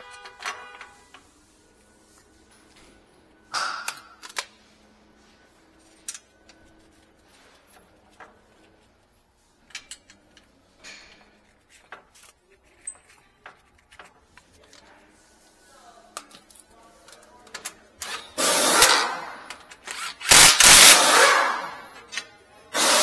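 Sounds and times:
tools clicking and clinking: 3.5s - 4.5s, 9.6s - 14.9s, 16.2s - 22.4s.

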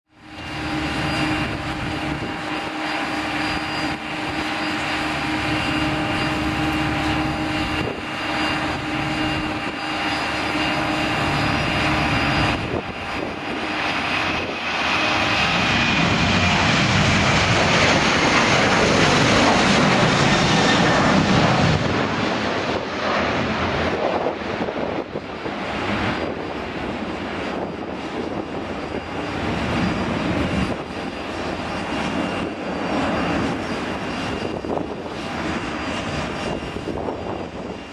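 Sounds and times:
jet engines at takeoff power: 0.1s - 37.9s.

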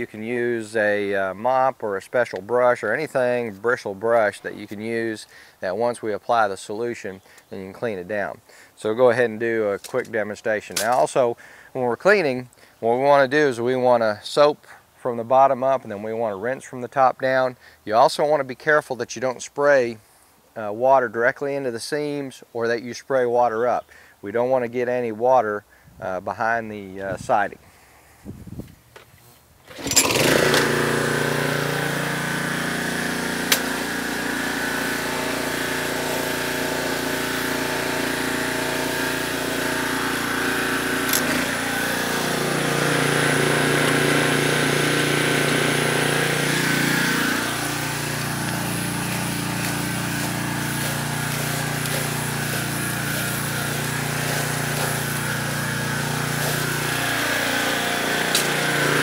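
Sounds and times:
pressure washer engine running: 29.7s - 59.0s.

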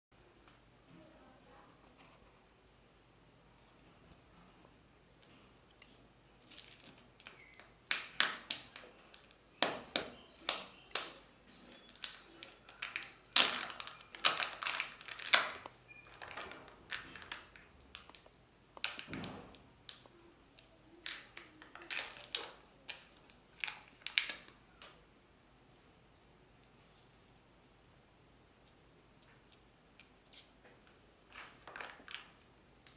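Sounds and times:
plastic egg crackling and clicking: 5.2s - 25.0s, 30.8s - 32.9s.

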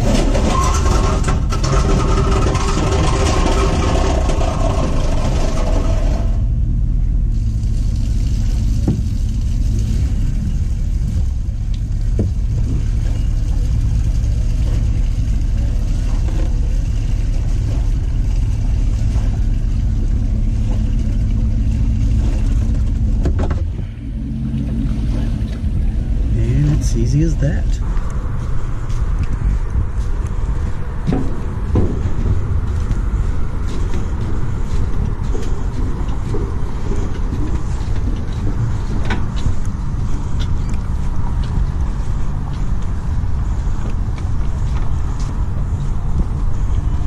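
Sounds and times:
boat engine cranking: 0.0s - 6.6s
truck engine idling: 0.0s - 47.0s.

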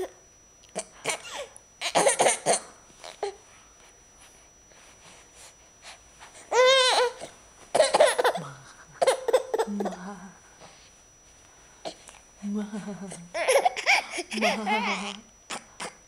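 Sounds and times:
baby laughing: 13.4s - 14.8s.

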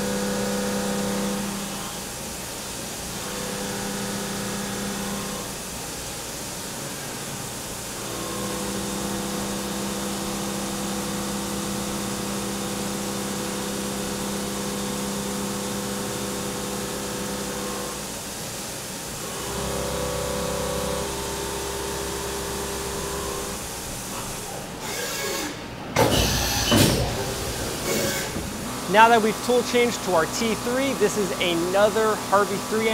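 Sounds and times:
milling machine cutting tone: 19.2s - 23.8s, 26.3s - 32.9s.

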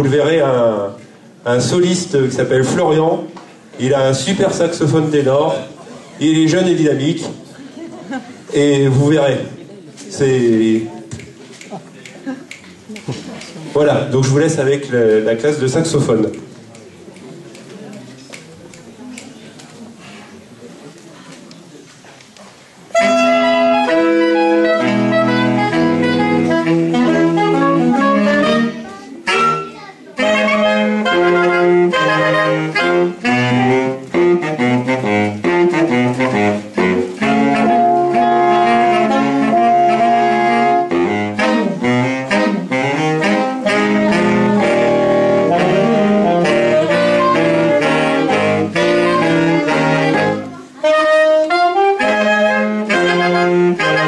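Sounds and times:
saxophone quartet playing jazz: 22.9s - 54.0s.

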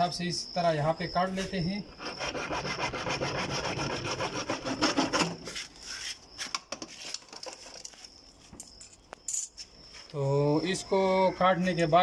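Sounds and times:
hacksaw sawing plastic pipe: 1.9s - 5.4s.

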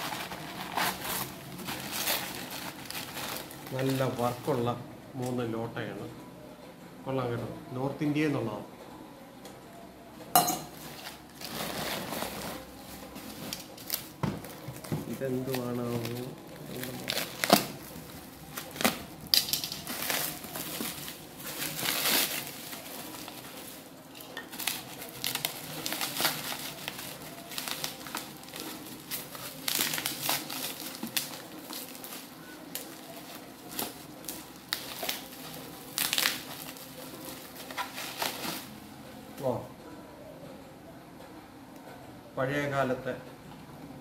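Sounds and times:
bubble wrap crinkling: 0.0s - 4.8s, 10.7s - 38.8s.

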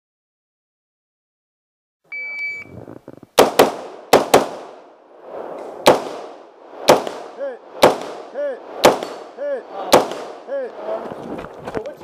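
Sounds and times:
shot timer beep: 2.1s - 2.7s
rifle shots echoing: 3.4s - 4.9s, 5.8s - 10.5s.

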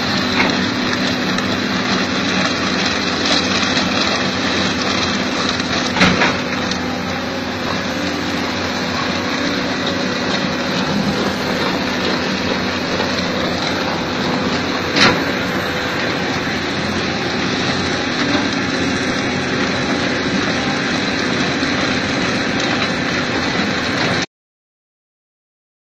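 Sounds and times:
steady hum: 0.0s - 22.3s
rotary drum cutter grinding rock: 0.0s - 24.3s.

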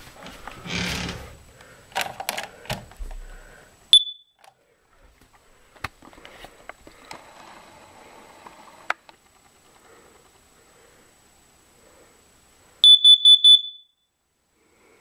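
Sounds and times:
handling knocks and clicks: 1.9s - 3.2s
alarm high-pitched beep: 4.0s - 4.4s, 12.8s - 14.1s.

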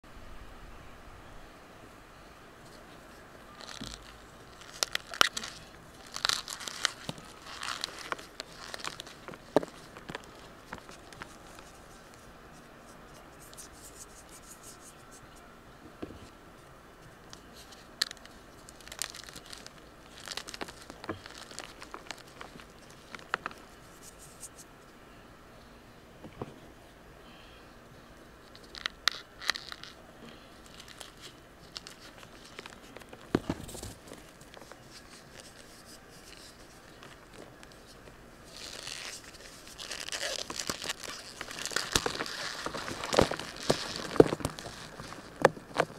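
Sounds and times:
chalk crunching and crumbling: 3.6s - 15.3s, 17.4s - 24.7s, 30.6s - 45.9s.

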